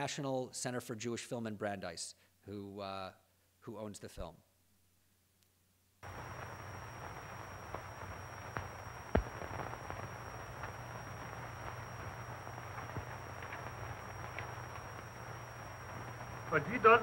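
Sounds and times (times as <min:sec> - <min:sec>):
film soundtrack hiss: 0:00.0 - 0:17.0
crackles and pops: 0:05.4 - 0:17.0
low hum: 0:06.0 - 0:17.0
thin high whine: 0:06.0 - 0:17.0.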